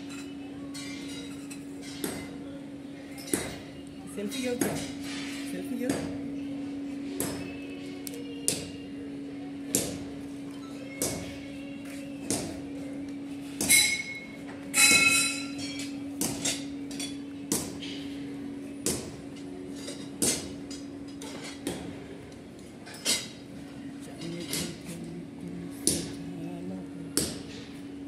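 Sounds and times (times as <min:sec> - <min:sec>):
steady low hum: 0:01.5 - 0:28.0
metal clanks and clinks: 0:13.7 - 0:17.2.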